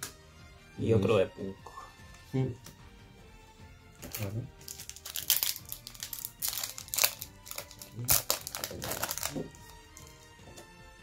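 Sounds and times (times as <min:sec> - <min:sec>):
foil wrappers crinkling: 0:04.0 - 0:10.2.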